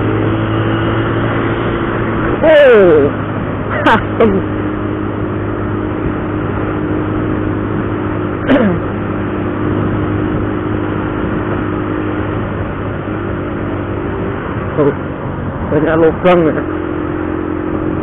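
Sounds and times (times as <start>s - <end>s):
motorcycle engine cruising: 0.0s - 18.0s
road and wind noise: 0.0s - 18.0s.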